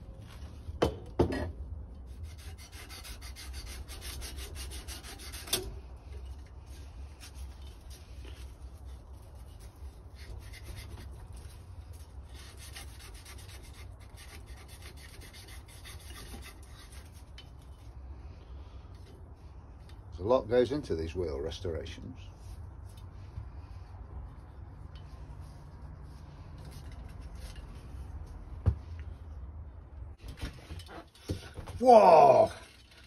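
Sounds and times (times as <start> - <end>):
abrasive paper rubbing metal spokes: 6.6 - 17.9.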